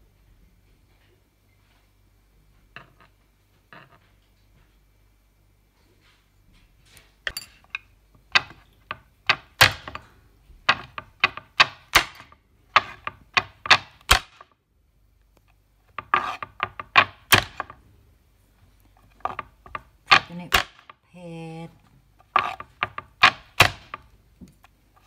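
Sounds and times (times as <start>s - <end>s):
cleaver chopping on wooden board: 10.7s - 14.4s, 16.0s - 17.7s, 22.3s - 24.0s.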